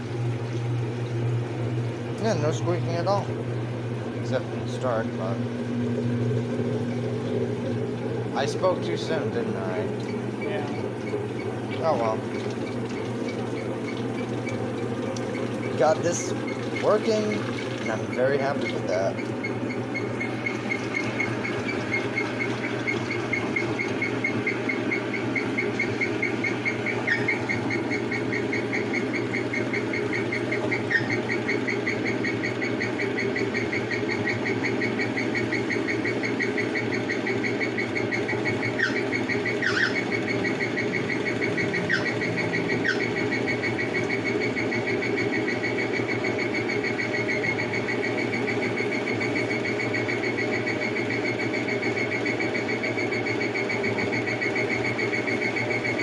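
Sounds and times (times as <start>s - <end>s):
washing machine motor hum: 0.0s - 56.0s
high squeak chirping: 15.3s - 35.8s, 36.4s - 44.2s.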